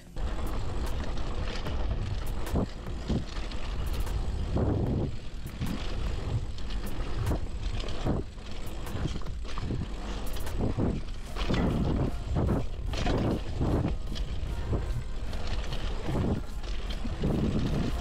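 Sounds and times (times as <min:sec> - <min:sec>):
bike clicks and rattles: 0:00.0 - 0:18.0
bike rolling over dirt rumble: 0:00.1 - 0:18.0.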